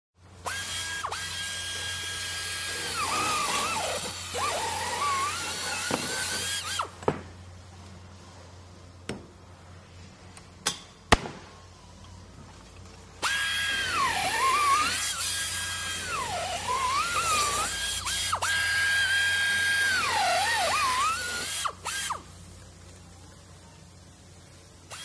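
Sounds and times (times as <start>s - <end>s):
power drill whining: 0.4s - 7.0s, 13.2s - 22.2s.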